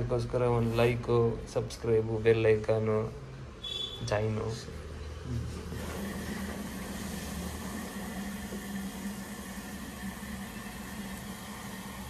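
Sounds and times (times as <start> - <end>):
washing machine motor humming: 5.6 - 12.0.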